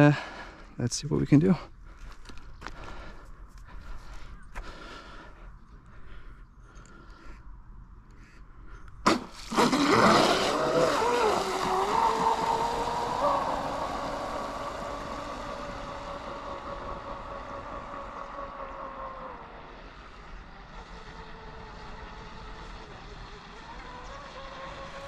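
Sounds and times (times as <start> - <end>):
boat motor whine: 9.0 - 25.0.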